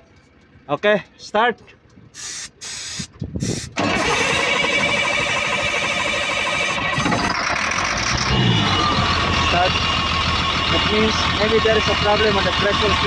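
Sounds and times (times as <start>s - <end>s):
diesel engine starting and running: 1.8s - 13.0s
aerosol spray hissing: 2.2s - 3.8s.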